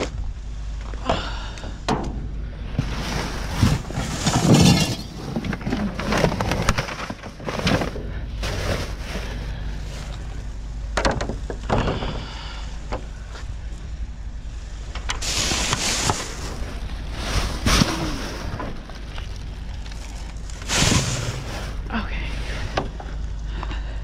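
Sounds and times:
rummaging through trash: 0:00.8 - 0:12.5, 0:14.8 - 0:24.0
loud crash: 0:20.7 - 0:21.8.

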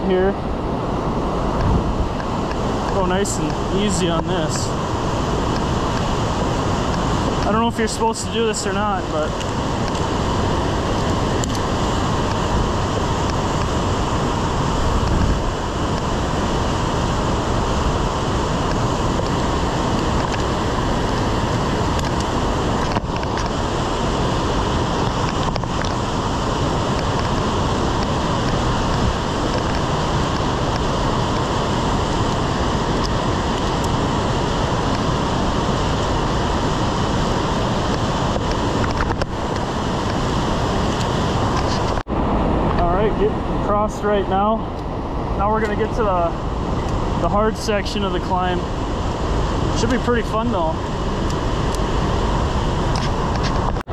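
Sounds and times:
whitewater rushing over boulders: 0:00.0 - 0:53.9
wind rumble on microphone: 0:00.0 - 0:53.9.

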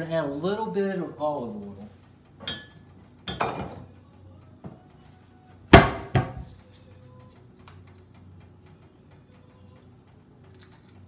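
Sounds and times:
cabinet door banging shut: 0:05.7 - 0:06.5
light knocks in kitchen: 0:05.7 - 0:06.5.

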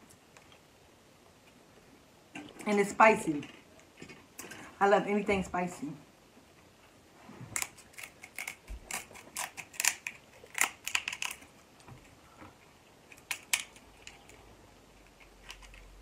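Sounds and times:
shears snipping crab shell: 0:07.6 - 0:11.4.

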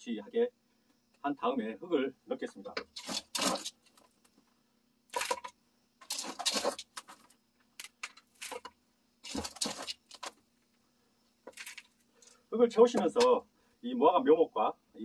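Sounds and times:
scoop scraping gritty soil: 0:03.0 - 0:03.8, 0:06.0 - 0:07.3, 0:08.4 - 0:10.3.

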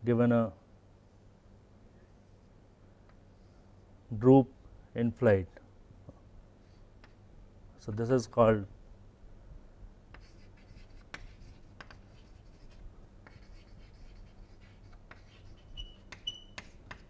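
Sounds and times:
chalk scratching on chalkboard: 0:10.2 - 0:17.0.

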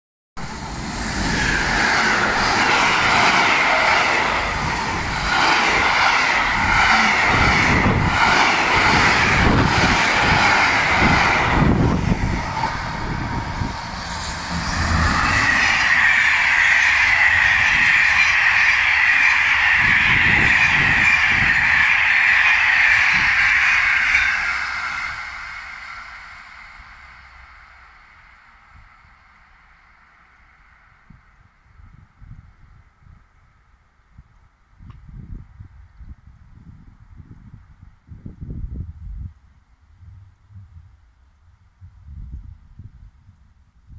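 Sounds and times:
passenger train rushing past: 0:00.4 - 0:32.5
freight train rumbling by: 0:00.4 - 0:33.6.

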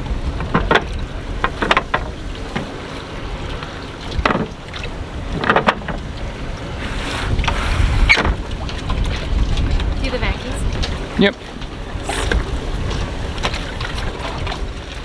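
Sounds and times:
wind rumbling on microphone: 0:00.0 - 0:15.0
wooden boards knocking and clattering: 0:00.4 - 0:02.7, 0:04.2 - 0:04.6, 0:05.4 - 0:06.0.

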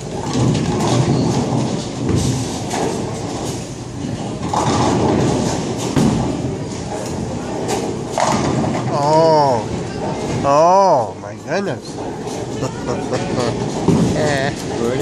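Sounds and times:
knocks and clatter: 0:00.0 - 0:08.9, 0:13.2 - 0:15.0
bowling balls rolling on lanes: 0:00.0 - 0:15.0.

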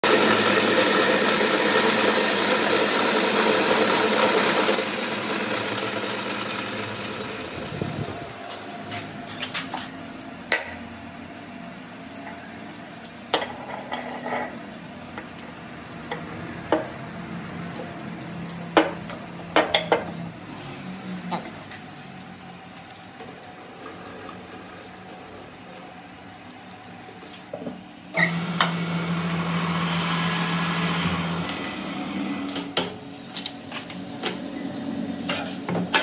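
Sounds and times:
metal lathe cutting steel: 0:00.0 - 0:07.8, 0:28.2 - 0:32.5
steel parts clinking on wood: 0:10.1 - 0:20.4.

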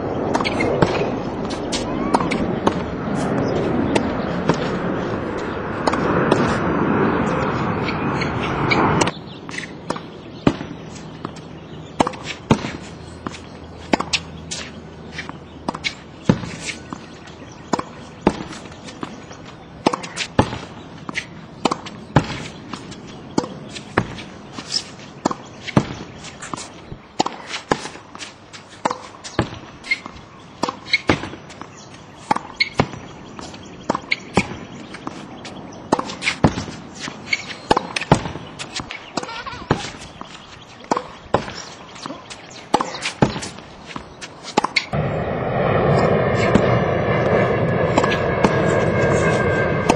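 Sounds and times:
racket striking tennis ball: 0:00.3 - 0:06.6, 0:09.0 - 0:19.2, 0:19.8 - 0:45.0, 0:47.9 - 0:48.6
ball bouncing on hard court: 0:28.8 - 0:31.4, 0:37.7 - 0:44.9.

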